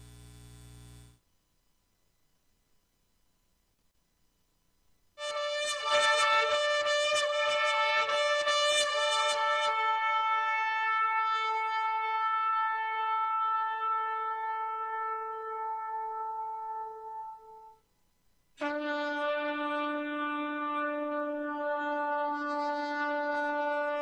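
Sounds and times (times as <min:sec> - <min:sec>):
horn-like wind instrument blasts: 0:05.2 - 0:17.8, 0:18.6 - 0:24.0.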